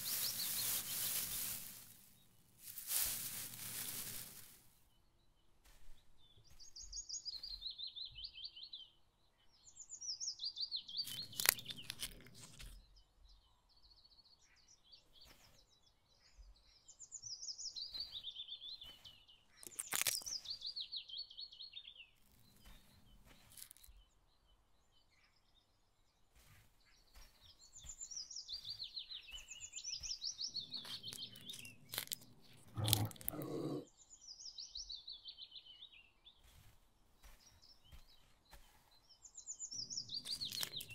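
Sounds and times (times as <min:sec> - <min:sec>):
sharp crunches and clicks: 0:11.0 - 0:12.8, 0:19.6 - 0:20.6, 0:22.2 - 0:24.0, 0:29.3 - 0:33.9, 0:39.8 - 0:40.9
songbird trilling: 0:27.6 - 0:33.9, 0:39.5 - 0:40.9.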